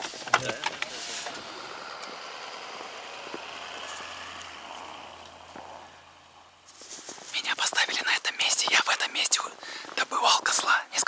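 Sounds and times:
vehicle engine running: 0:00.0 - 0:08.6.

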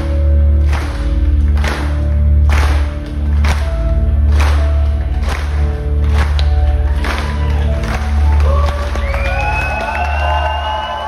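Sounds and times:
audience cheering: 0:06.8 - 0:11.0.

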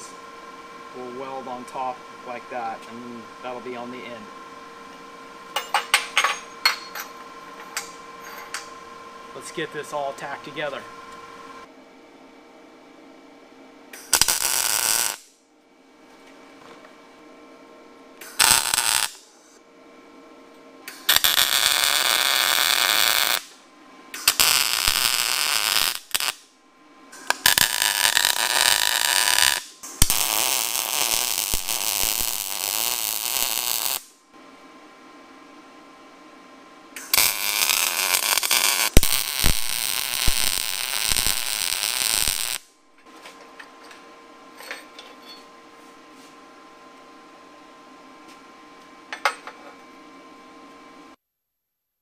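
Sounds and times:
electric arc welding buzz: 0:00.0 - 0:00.3, 0:14.0 - 0:15.3, 0:18.2 - 0:19.6, 0:21.0 - 0:23.6, 0:24.2 - 0:26.5, 0:27.2 - 0:34.2, 0:37.0 - 0:42.7.

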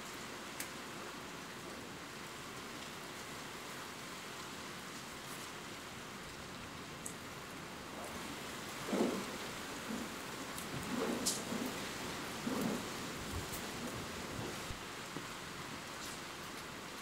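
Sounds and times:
steady rain hiss: 0:00.0 - 0:17.0
low thunder rumble: 0:07.9 - 0:14.8.

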